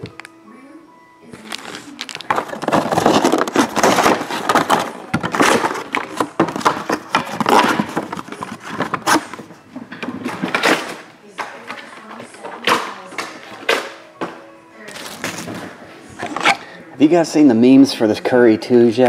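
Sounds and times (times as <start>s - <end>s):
cardboard boxes rustling and scraping: 1.6s - 10.7s
boxes knocking on table: 2.3s - 11.0s.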